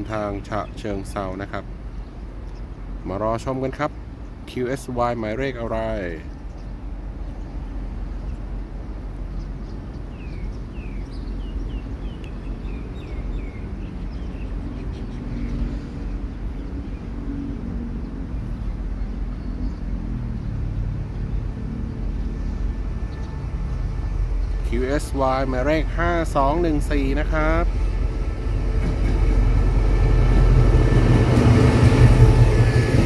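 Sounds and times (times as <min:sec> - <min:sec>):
diesel locomotive engine drone: 0:00.0 - 0:33.0
bird chirping: 0:09.3 - 0:17.1.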